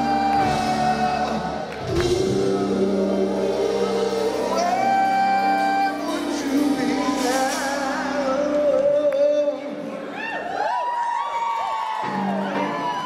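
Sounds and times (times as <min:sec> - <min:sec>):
live rock band playing: 0:00.0 - 0:09.1.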